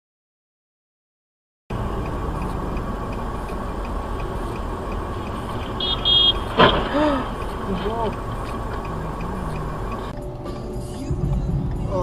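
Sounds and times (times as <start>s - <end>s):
faint ticking: 1.7s - 10.2s
car engine and cabin noise: 1.7s - 12.0s
short high-pitched beeps: 5.2s - 6.7s.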